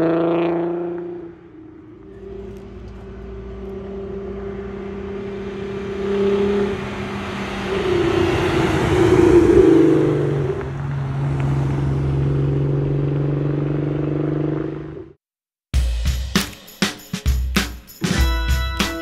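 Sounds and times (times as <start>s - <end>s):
car engine approaching: 0.0s - 15.2s.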